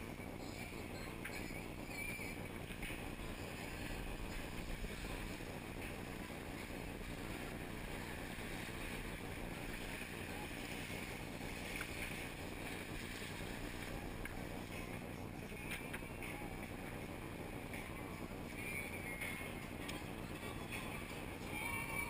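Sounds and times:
rushing water: 0:03.2 - 0:14.6.

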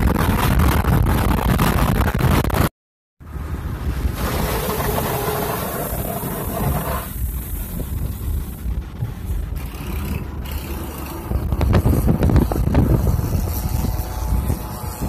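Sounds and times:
car cabin road and engine rumble: 0:03.2 - 0:15.0.

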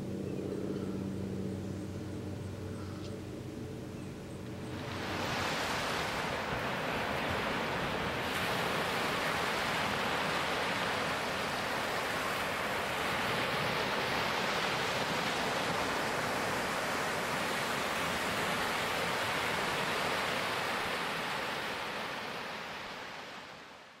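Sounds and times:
small waves breaking on a beach: 0:04.6 - 0:24.0.

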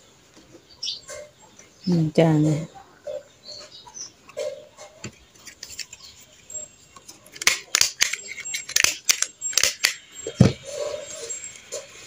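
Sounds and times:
stapler clicks: 0:07.4 - 0:10.0.

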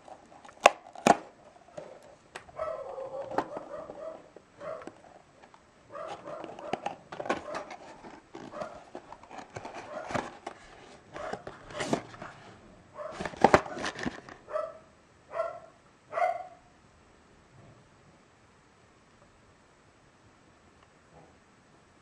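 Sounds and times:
cardboard box tearing: 0:06.1 - 0:12.2.

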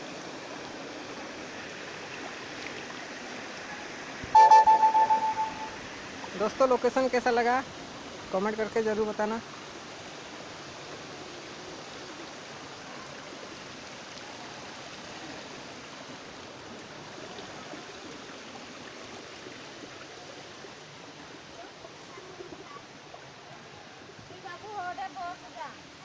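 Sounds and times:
waterfall splashing over rocks: 0:05.8 - 0:22.3.

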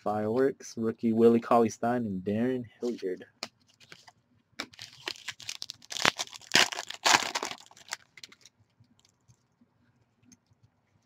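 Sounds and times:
foil wrapper tearing and crinkling: 0:04.6 - 0:09.1.

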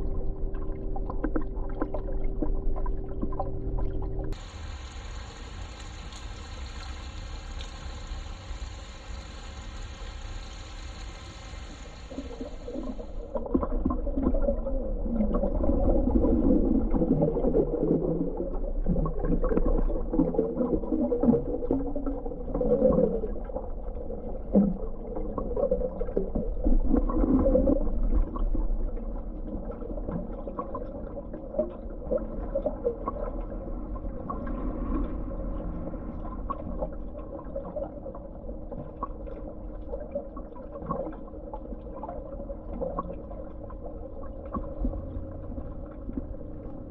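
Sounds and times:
steady hum: 0:00.0 - 0:13.7
underwater swirling and bubbling: 0:00.0 - 0:46.9.

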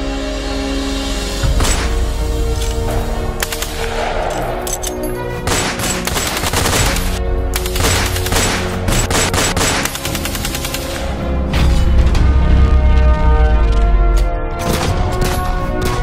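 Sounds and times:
rapid gunfire: 0:05.4 - 0:11.1.

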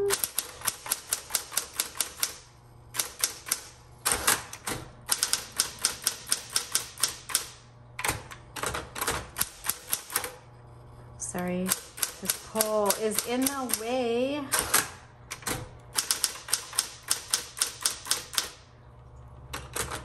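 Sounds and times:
typewriter motor hum: 0:00.0 - 0:10.6, 0:11.2 - 0:20.0
typewriter key strikes: 0:00.1 - 0:02.3, 0:03.0 - 0:10.3, 0:14.6 - 0:18.6.

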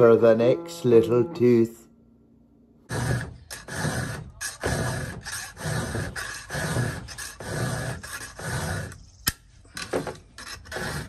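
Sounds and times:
file rasping on chain: 0:02.9 - 0:09.1, 0:10.4 - 0:11.0.

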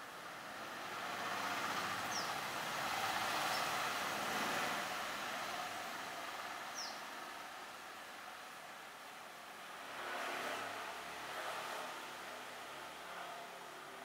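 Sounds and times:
vehicle passing by: 0:00.6 - 0:06.6, 0:09.6 - 0:14.0.

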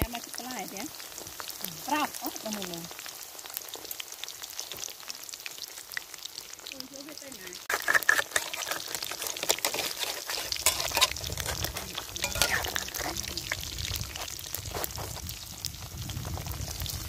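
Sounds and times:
food deep-frying in oil: 0:00.0 - 0:17.0
metal spatula stirring: 0:07.6 - 0:14.4.

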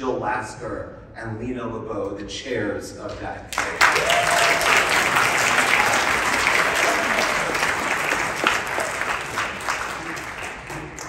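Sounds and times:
congregation applauding: 0:03.5 - 0:11.0.

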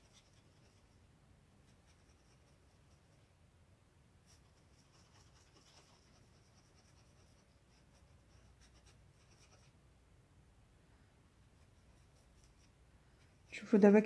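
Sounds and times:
paintbrush scratching on cloth: 0:00.0 - 0:03.4, 0:04.2 - 0:09.8, 0:11.4 - 0:13.3
low steady hum: 0:00.0 - 0:14.0.

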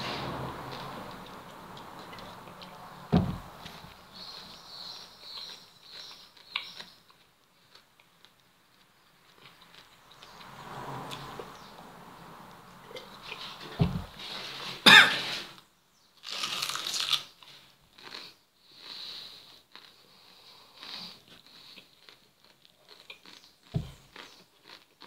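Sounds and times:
low thump: 0:03.1 - 0:03.5, 0:13.8 - 0:14.2, 0:23.8 - 0:24.0
person crunching and chewing onion: 0:16.2 - 0:25.0.

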